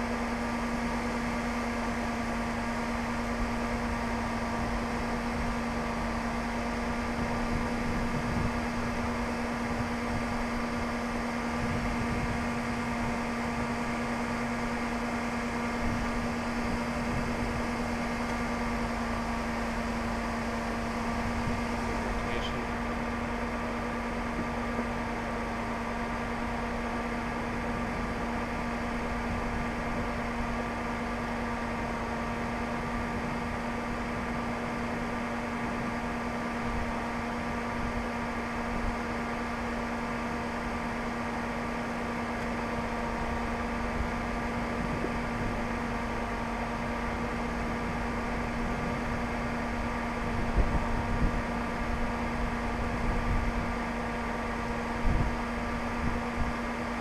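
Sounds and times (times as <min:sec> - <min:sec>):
steady mechanical hum: 0:00.0 - 0:57.0.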